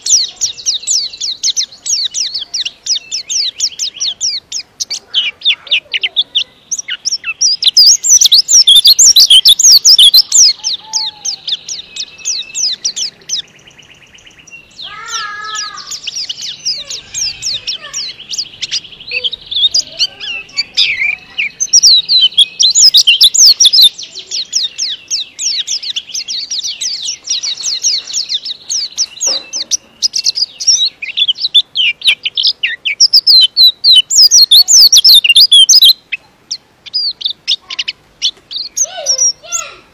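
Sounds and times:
bird twittering song: 0.0 - 39.9.

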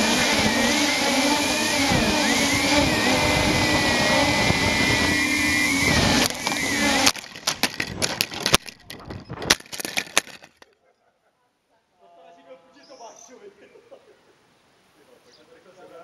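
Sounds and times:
quadcopter motors whining: 0.0 - 10.4
quadcopter crashing and tumbling: 0.0 - 10.7.

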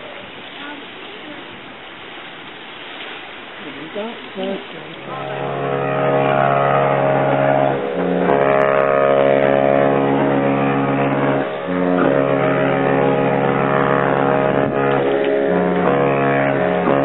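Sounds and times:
ship horns blasting: 4.4 - 17.0.

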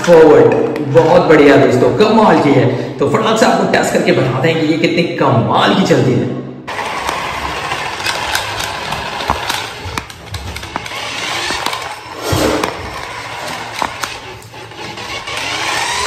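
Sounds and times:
toy car electric motor whirring: 6.7 - 16.0
wheels rolling on tiled floor: 6.7 - 16.0.

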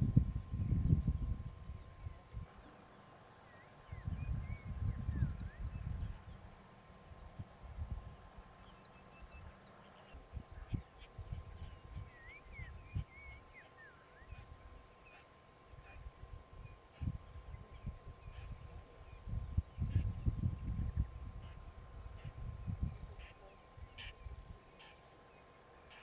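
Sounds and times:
wind rumble on microphone: 0.0 - 2.7, 3.8 - 13.6, 15.7 - 24.7
birds whistling and chirping: 3.4 - 6.4, 8.6 - 14.5.

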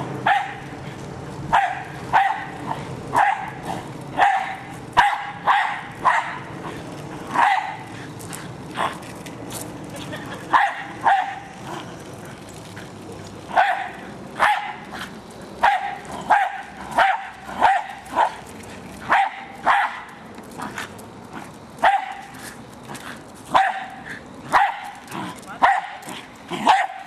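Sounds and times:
dog barking: 0.2 - 0.6, 1.5 - 3.6, 4.2 - 6.5, 7.4 - 7.8, 10.5 - 11.4, 13.6 - 14.8, 15.6 - 18.4, 19.1 - 20.0, 21.8 - 22.3, 23.5 - 25.0, 25.6 - 26.0, 26.6 - 27.0.

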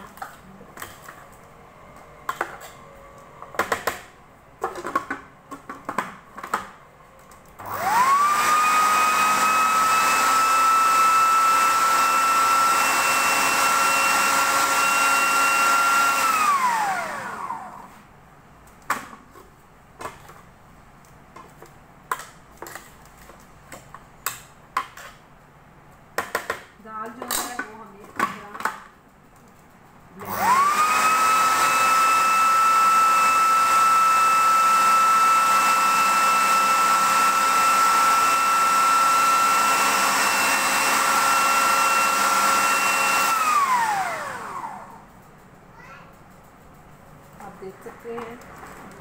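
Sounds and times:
food processor motor whine: 7.6 - 17.9, 30.2 - 45.0.

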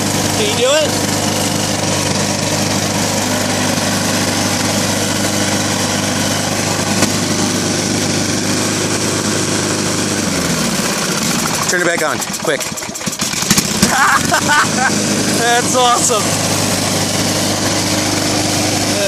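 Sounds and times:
lawn mower engine running: 0.0 - 19.0.

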